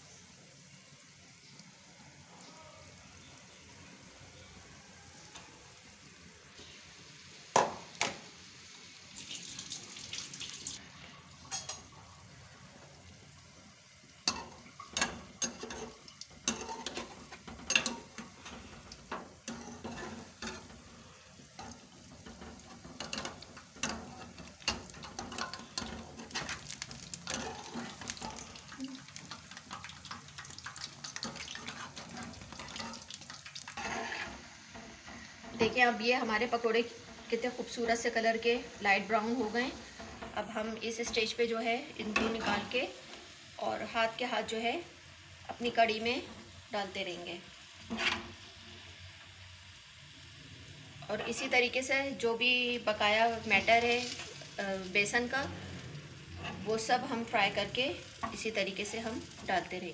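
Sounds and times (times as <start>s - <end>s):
food deep-frying in oil: 0.0s - 59.9s
spoon scraping metal pan: 14.3s - 20.9s, 21.6s - 28.6s, 31.1s - 33.1s, 33.7s - 35.8s, 42.0s - 42.8s, 47.8s - 48.4s, 56.3s - 57.3s.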